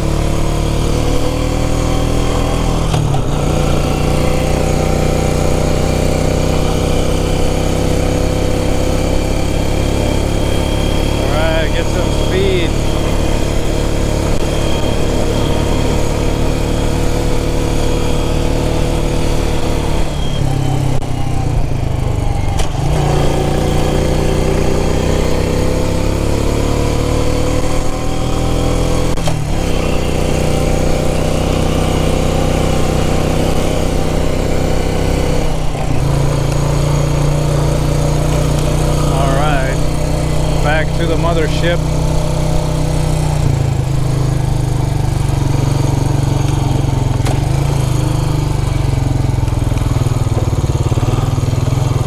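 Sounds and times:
quad engine running: 0.0 - 52.0.

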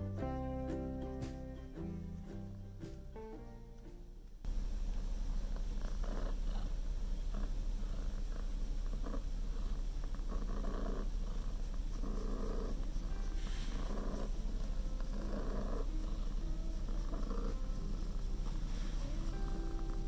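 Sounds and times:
cat purring: 4.4 - 20.0.

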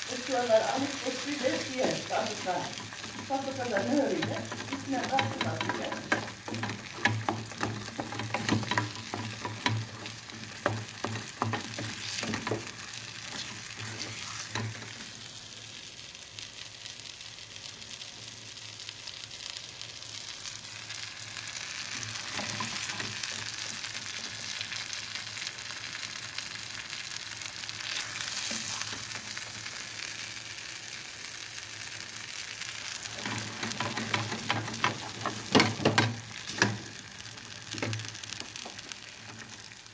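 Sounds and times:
mixture sizzling: 0.0 - 39.9
wooden spoon scraping metal pan: 0.5 - 14.8, 33.1 - 37.0.

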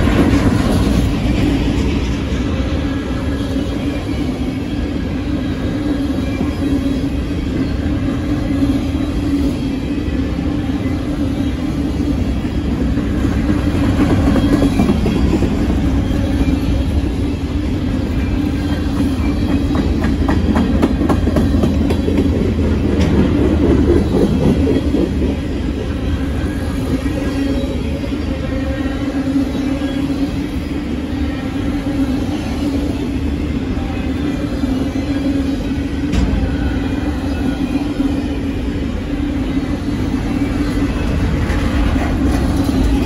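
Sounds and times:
constant hum: 0.0 - 43.0
train wheels rumbling on rail: 0.0 - 43.0
wheels clickety-clack: 18.7 - 25.4.

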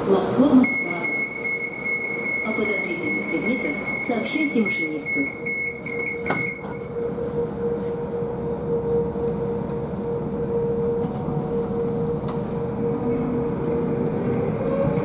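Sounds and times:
steady whine: 0.0 - 14.7
click: 12.2 - 12.4.

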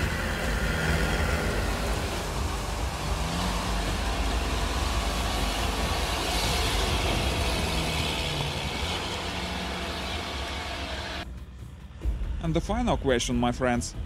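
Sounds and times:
atv engine running under load: 0.0 - 11.2.

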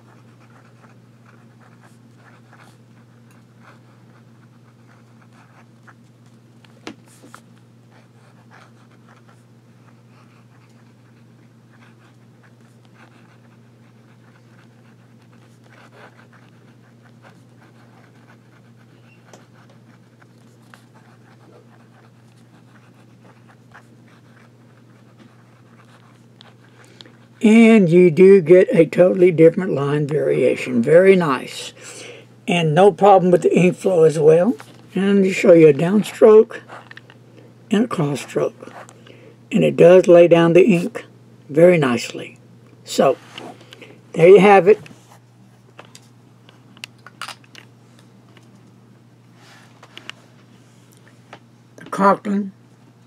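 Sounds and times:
pen nib scratching paper: 0.0 - 27.7, 36.1 - 37.1
steady low hum: 0.0 - 53.0.

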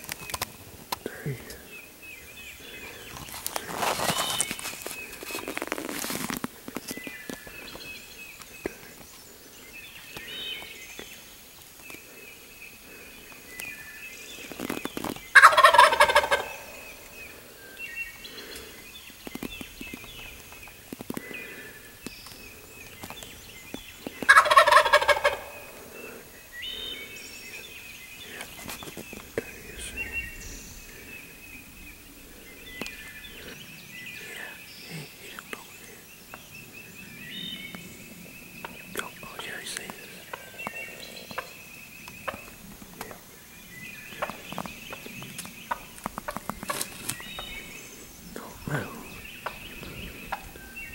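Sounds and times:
songbirds singing faintly: 0.0 - 50.9
turkey gobbling: 15.3 - 17.0, 24.2 - 25.9.

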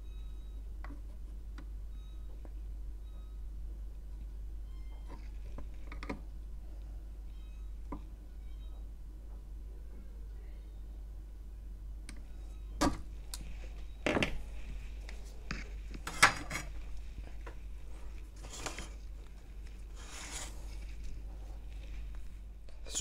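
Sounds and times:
gloved hand rustling: 16.7 - 23.0.

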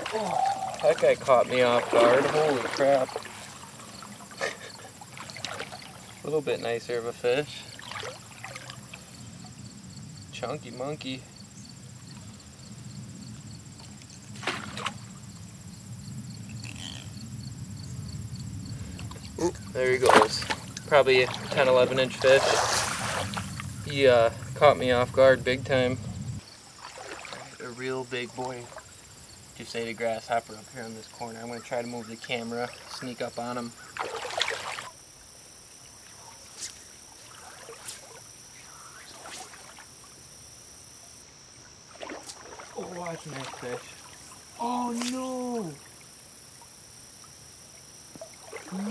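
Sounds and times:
fish splashing into water: 0.0 - 6.2, 7.7 - 9.1, 14.3 - 15.2, 18.9 - 23.8, 26.8 - 27.6, 33.8 - 35.0, 41.9 - 45.4
creek running water: 0.0 - 48.9
grasshoppers chirping: 0.0 - 48.9
high insect buzz: 0.0 - 48.9.

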